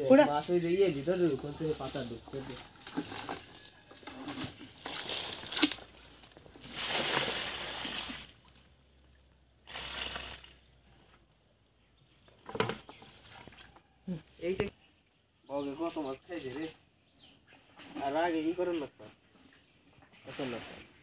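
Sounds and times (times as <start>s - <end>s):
pond water splashing: 1.5s - 10.9s, 13.0s - 13.8s.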